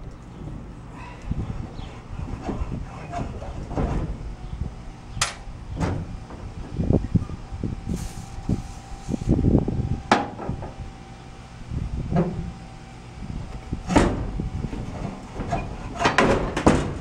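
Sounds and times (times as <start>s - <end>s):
low background rumble: 0.0s - 17.0s
metal knocks and clanks: 13.9s - 17.0s.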